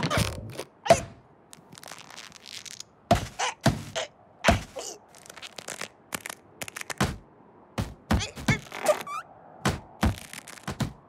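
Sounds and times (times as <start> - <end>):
cartoon knocks and thuds: 3.1 - 4.8, 7.0 - 8.7, 9.6 - 11.0
squeaky tone: 8.2 - 9.3.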